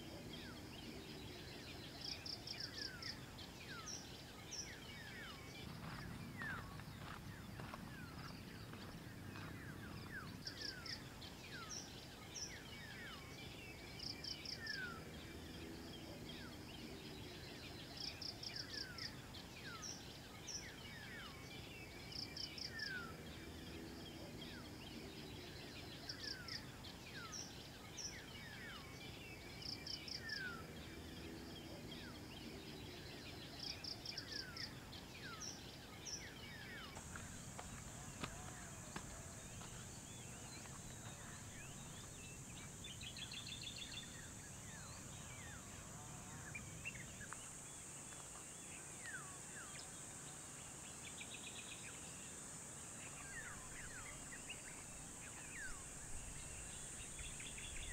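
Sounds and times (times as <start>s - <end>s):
birds calling and chirping: 0.0s - 57.9s.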